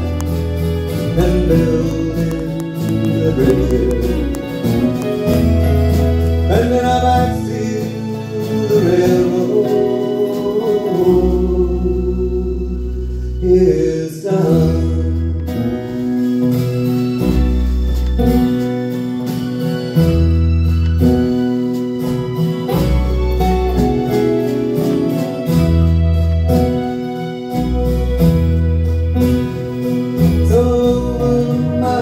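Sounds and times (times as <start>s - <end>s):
long held bass notes: 0.0s - 16.1s
acoustic guitar: 0.0s - 32.0s.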